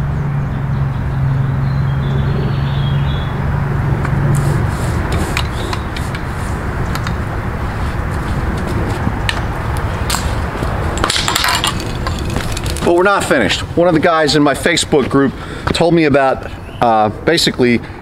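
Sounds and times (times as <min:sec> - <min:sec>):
low vehicle hum: 0:00.0 - 0:15.7
road traffic rumble: 0:00.0 - 0:18.0
pole clicking against tree: 0:05.1 - 0:06.3, 0:06.9 - 0:07.2.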